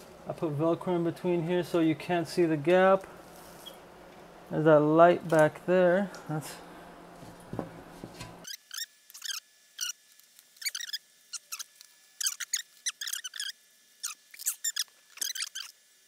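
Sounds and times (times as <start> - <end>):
velcro rasps and squeaks: 3.3 - 3.8, 8.4 - 15.9.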